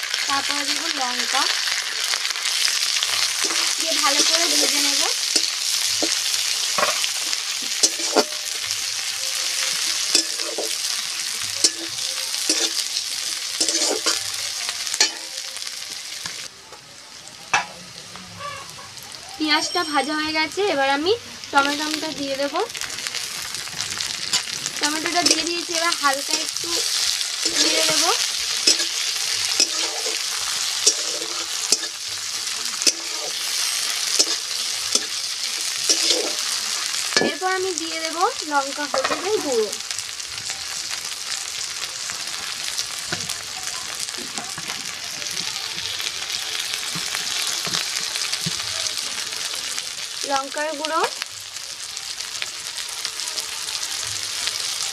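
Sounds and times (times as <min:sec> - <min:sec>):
onions sizzling in oil: 0:00.0 - 0:54.9
metal spatula scraping a pan: 0:02.5 - 0:08.7, 0:09.4 - 0:10.9, 0:11.6 - 0:12.9, 0:13.6 - 0:14.3, 0:23.4 - 0:37.5.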